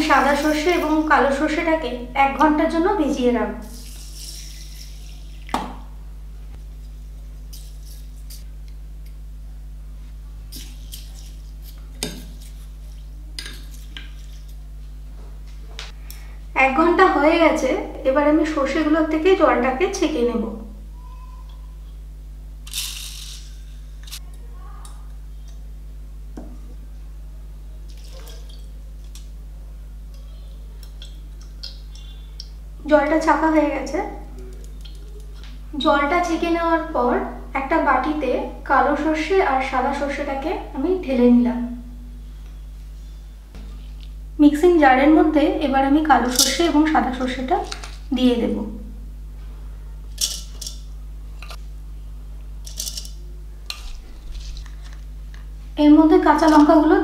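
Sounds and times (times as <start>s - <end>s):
spoon scraping seeds: 0.0s - 1.1s, 3.7s - 5.3s, 7.1s - 8.5s, 10.5s - 14.6s, 53.7s - 55.0s
steady low hum: 0.0s - 57.0s.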